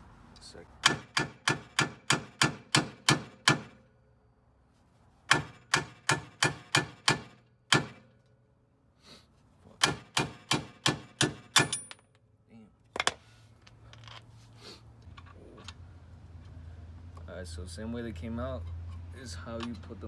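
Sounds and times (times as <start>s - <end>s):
hammer striking steel stud: 0.8s - 3.8s, 5.3s - 8.1s, 9.8s - 12.0s.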